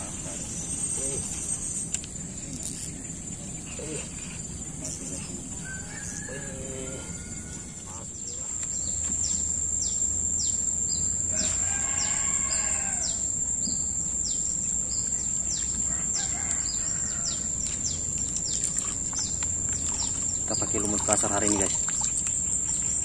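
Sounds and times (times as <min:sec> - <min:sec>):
steady high whine: 0:00.0 - 0:18.5
rooster crowing: 0:05.6 - 0:08.0, 0:11.3 - 0:13.3, 0:15.9 - 0:17.5.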